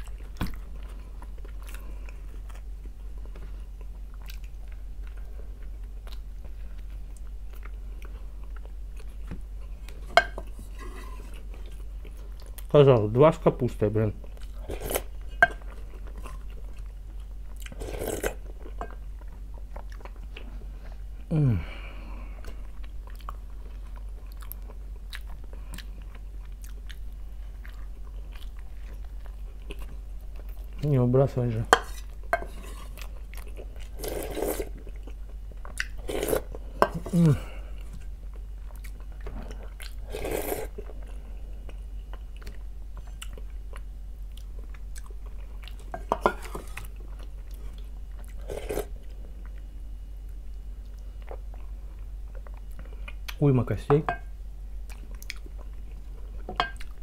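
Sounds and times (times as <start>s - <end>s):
soft chewing clicks: 0.0s - 10.0s, 18.5s - 20.5s, 22.3s - 31.0s, 37.8s - 40.0s, 40.8s - 46.0s, 49.4s - 53.4s, 54.8s - 57.0s
person slurping soup: 17.7s - 18.4s, 33.9s - 34.8s, 36.0s - 37.5s, 40.0s - 40.8s, 48.4s - 48.9s.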